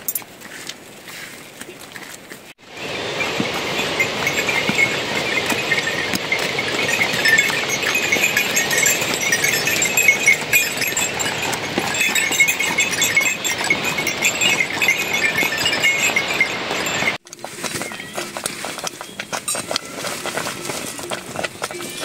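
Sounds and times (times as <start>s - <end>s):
hoof clicks: 0.0s - 22.0s
sheep and goats calling: 17.8s - 22.0s.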